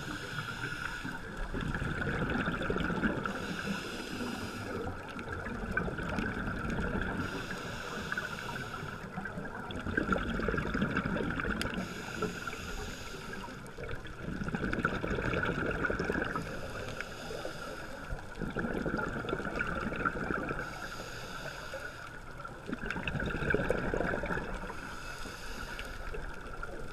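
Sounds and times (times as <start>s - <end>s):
diver breathing through regulator: 0.0s - 1.5s, 3.2s - 5.1s, 7.0s - 9.2s, 11.7s - 13.8s, 16.2s - 18.4s, 20.5s - 22.3s, 24.2s - 26.3s
underwater hiss: 0.0s - 1.6s, 2.4s - 5.4s, 6.1s - 9.5s, 11.6s - 14.1s, 15.9s - 22.5s, 23.6s - 26.8s.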